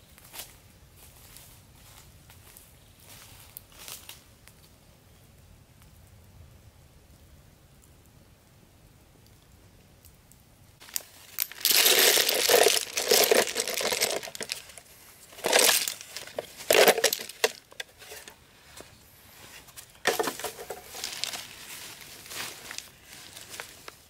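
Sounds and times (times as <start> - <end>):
leaves rustling and crunching: 0.2 - 4.2, 10.8 - 24.0.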